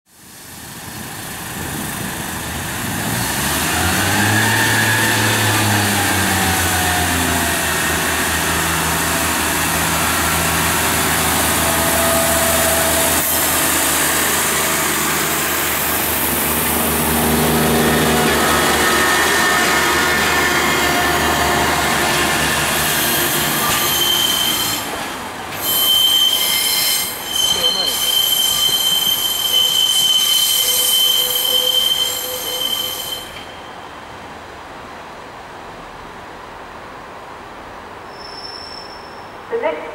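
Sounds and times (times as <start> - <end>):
train diesel engine revving: 1.2 - 25.6
train wheels squealing: 22.8 - 25.0, 25.6 - 33.9, 38.1 - 39.4.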